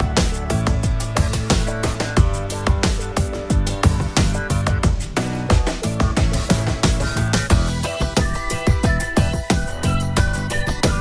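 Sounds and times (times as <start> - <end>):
deep kick drums: 0.0 - 11.0.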